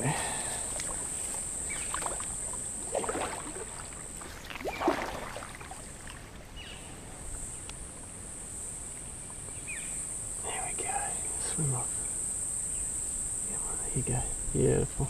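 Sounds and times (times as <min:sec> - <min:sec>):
high-pitched insect drone: 0:00.0 - 0:05.1, 0:08.2 - 0:15.0
water splashing: 0:00.0 - 0:07.3.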